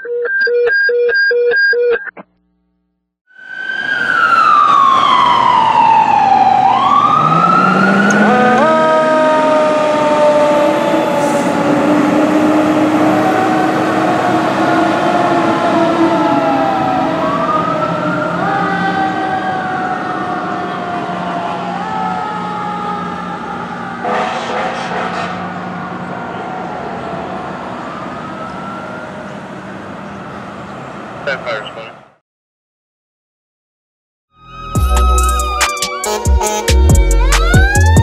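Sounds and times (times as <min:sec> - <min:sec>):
air horn blasts: 0:08.0 - 0:09.6, 0:24.0 - 0:25.5, 0:36.0 - 0:37.2.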